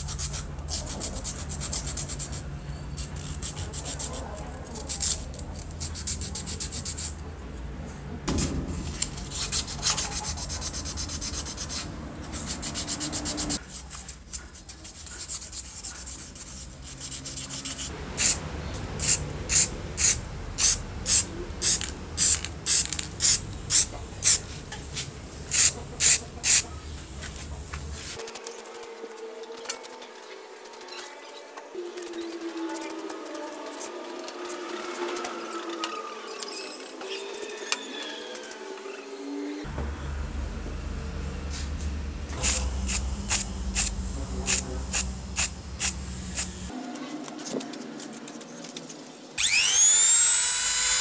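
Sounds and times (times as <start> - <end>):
sandpaper rubbing on plastic: 0.0 - 7.2, 9.2 - 18.4, 25.5 - 26.7
spray paint can hissing: 17.4 - 18.4, 19.0 - 24.4, 25.5 - 26.6, 42.4 - 46.7.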